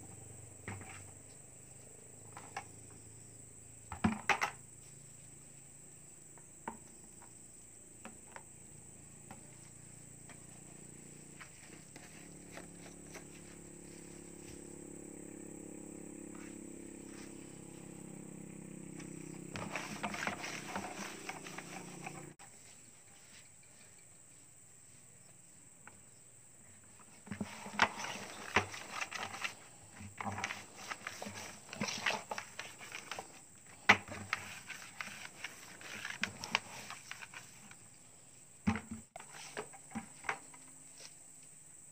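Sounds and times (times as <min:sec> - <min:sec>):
high insect drone: 0:00.0 - 0:41.9
plastic buckets clicking and knocking: 0:00.6 - 0:01.1, 0:03.9 - 0:04.6, 0:18.9 - 0:22.4, 0:27.0 - 0:37.8, 0:38.6 - 0:40.7
bucket rattling: 0:19.0 - 0:22.4, 0:27.2 - 0:37.7.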